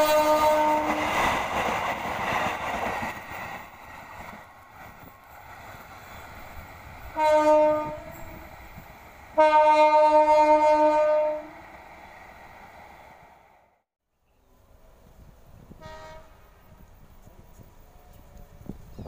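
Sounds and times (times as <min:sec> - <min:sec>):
locomotive horn blasts: 0:00.0 - 0:01.0, 0:07.1 - 0:08.4, 0:09.4 - 0:11.6, 0:15.7 - 0:16.5
train running rumble: 0:00.0 - 0:13.5.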